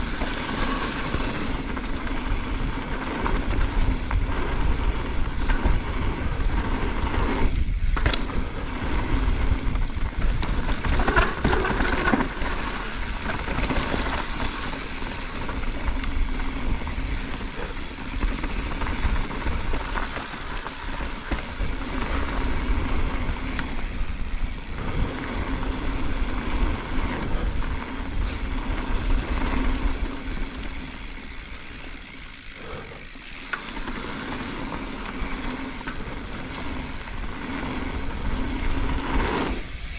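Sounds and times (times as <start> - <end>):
bike rattling over bumps: 0.0 - 39.9
tyres rolling over dirt: 0.0 - 39.9.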